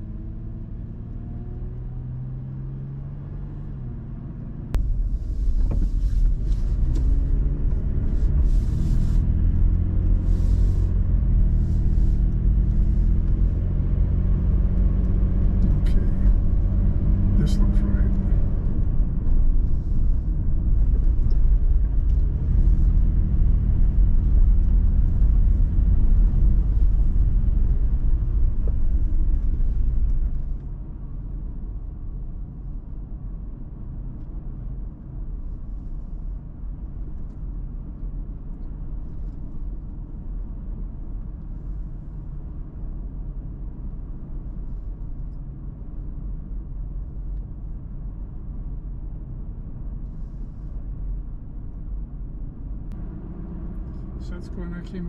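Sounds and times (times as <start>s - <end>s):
car engine and tyres rumbling: 0.0s - 55.0s.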